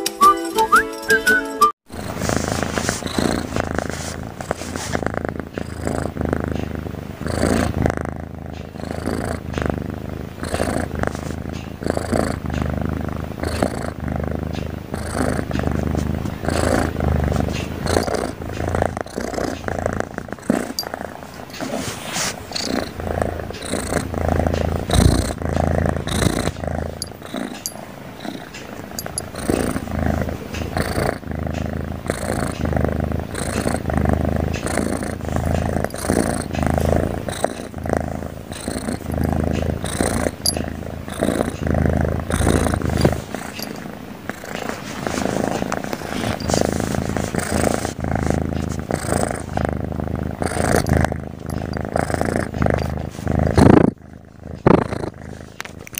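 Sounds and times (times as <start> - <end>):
kitten snoring: 1.9 - 55.9.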